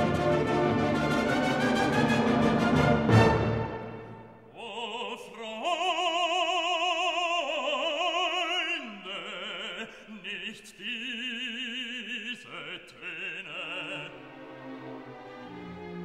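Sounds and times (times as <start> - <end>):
operatic classical music: 0.0 - 7.4, 12.1 - 16.0.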